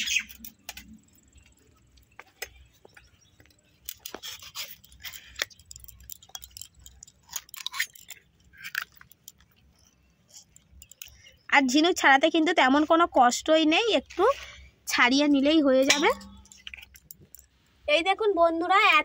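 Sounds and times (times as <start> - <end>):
shells clicking against blade: 3.8 - 9.5, 10.3 - 11.4.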